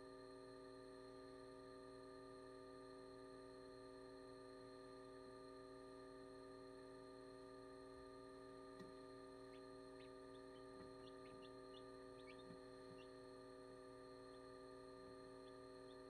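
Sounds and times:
electrical hum: 0:00.0 - 0:16.0
chicks peeping: 0:09.5 - 0:13.1.

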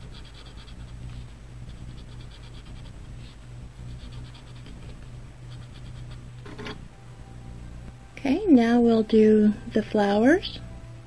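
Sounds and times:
blending stump scratching paper: 0:00.0 - 0:06.8.

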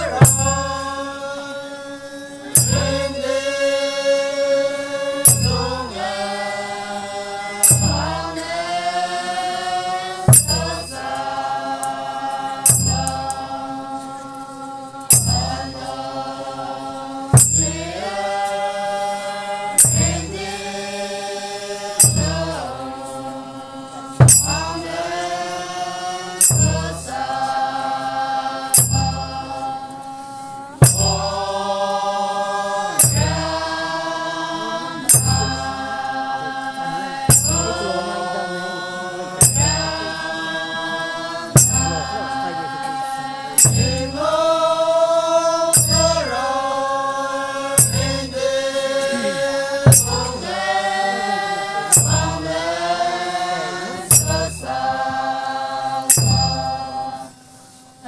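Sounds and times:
sharp beat with low thud: 0:00.0 - 0:01.0, 0:02.4 - 0:03.2, 0:05.2 - 0:06.1, 0:07.6 - 0:08.8, 0:10.2 - 0:11.2, 0:12.6 - 0:13.6, 0:15.1 - 0:15.9, 0:17.3 - 0:18.1, 0:19.7 - 0:20.6, 0:21.9 - 0:23.1, 0:24.1 - 0:25.0, 0:26.3 - 0:27.5, 0:28.7 - 0:29.6, 0:30.8 - 0:31.5, 0:32.9 - 0:33.9, 0:35.0 - 0:36.1, 0:37.1 - 0:38.1, 0:39.3 - 0:40.2, 0:41.4 - 0:42.4, 0:43.5 - 0:44.5, 0:45.7 - 0:46.4, 0:47.8 - 0:48.4, 0:49.1 - 0:50.9, 0:51.8 - 0:53.0, 0:54.0 - 0:55.3, 0:56.1 - 0:57.0
group of voices chanting: 0:00.0 - 0:57.3.

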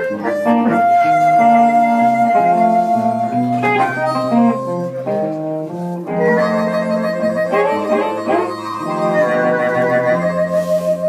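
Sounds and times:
amplified harmonica: 0:00.0 - 0:11.0
electric guitar: 0:00.0 - 0:11.0.

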